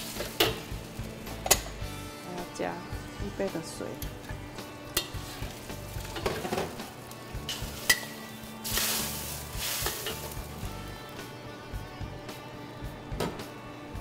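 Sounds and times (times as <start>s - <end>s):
water sizzling in hot wok: 0.0s - 11.2s
metal spatula scraping wok: 4.2s - 10.7s.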